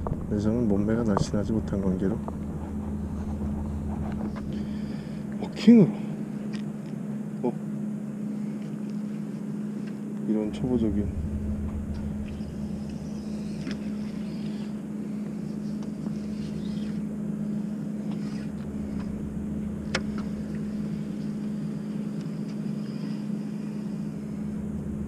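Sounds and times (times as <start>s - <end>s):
low engine hum: 0.0s - 25.0s.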